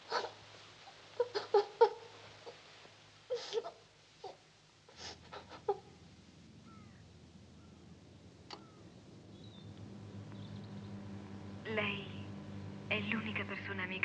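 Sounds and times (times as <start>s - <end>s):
steady low hum: 0.0s - 14.0s
woman sobbing: 3.3s - 3.8s, 4.9s - 5.9s.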